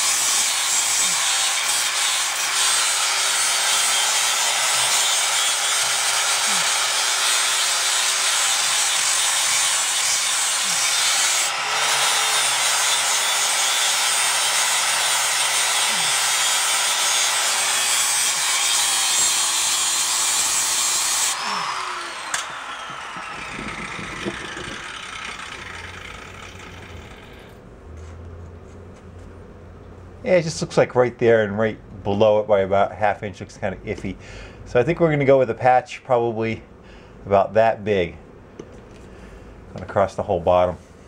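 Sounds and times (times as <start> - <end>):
wire wheel grinder scouring metal: 0.0 - 27.6
grinder motor winding down: 2.7 - 27.6.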